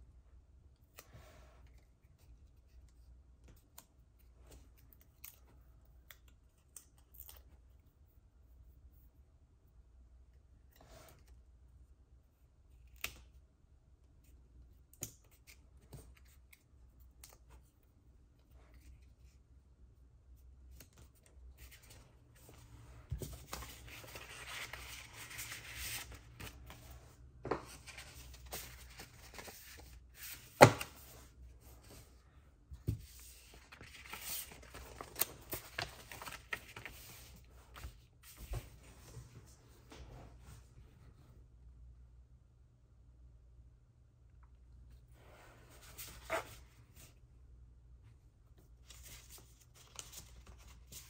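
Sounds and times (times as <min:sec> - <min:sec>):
paper and card rustling: 0:20.7 - 0:32.2, 0:32.8 - 0:39.2, 0:48.7 - 0:51.0.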